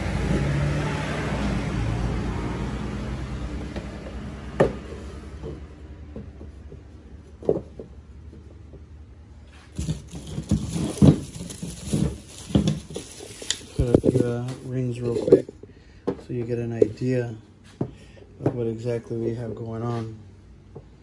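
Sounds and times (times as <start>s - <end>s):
low vehicle rumble: 0.0s - 16.4s
clattering knocks: 9.8s - 13.2s.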